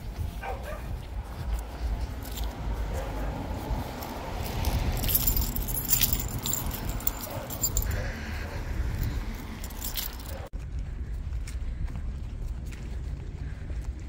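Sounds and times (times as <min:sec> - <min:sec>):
wind rumble: 0:00.0 - 0:14.0
small metal objects jingling: 0:01.5 - 0:02.8, 0:03.6 - 0:10.5.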